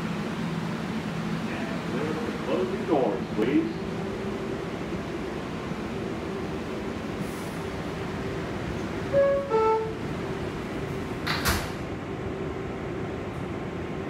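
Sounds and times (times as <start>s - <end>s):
subway car hum: 0.0s - 14.0s
sliding doors closing: 8.7s - 12.0s
two-note falling door chime: 9.2s - 10.0s.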